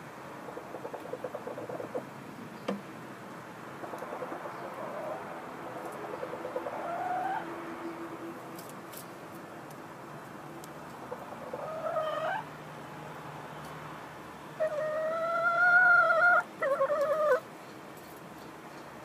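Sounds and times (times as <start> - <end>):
hens clucking: 0.5 - 2.1, 3.8 - 7.8, 10.9 - 12.5, 14.6 - 17.5.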